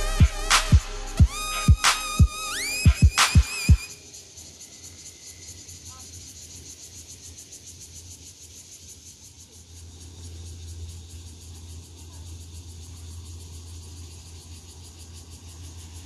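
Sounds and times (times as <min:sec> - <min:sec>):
drum hit: 0:00.0 - 0:03.8
insect chorus shrill drone: 0:00.0 - 0:16.0.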